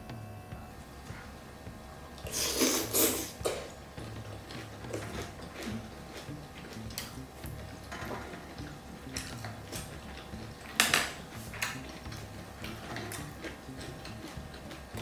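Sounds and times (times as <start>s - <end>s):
chewing and mouth sounds: 2.2s - 15.0s
utensil clatter: 2.2s - 15.0s
chopsticks clicking on dishes: 7.8s - 15.0s.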